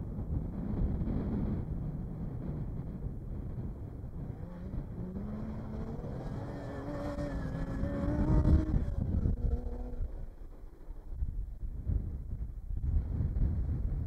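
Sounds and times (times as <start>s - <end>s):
race truck engine accelerating: 2.4s - 11.4s.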